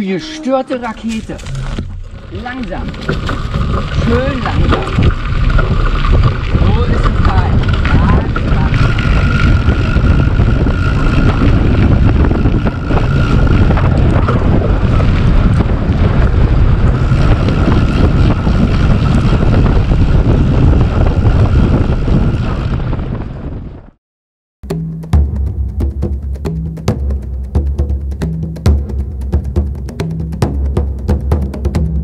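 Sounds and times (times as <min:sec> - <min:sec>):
thin high tone: 0:00.0 - 0:01.8
wind buffeting microphone: 0:00.7 - 0:24.0.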